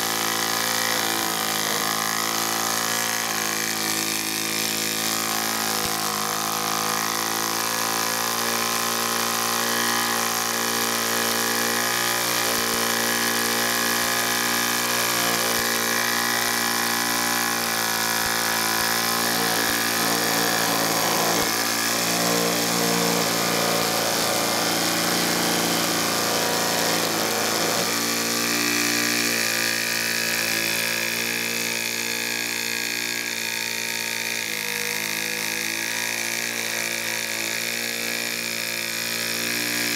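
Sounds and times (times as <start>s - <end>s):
model steam engine whirring: 0.0s - 39.9s.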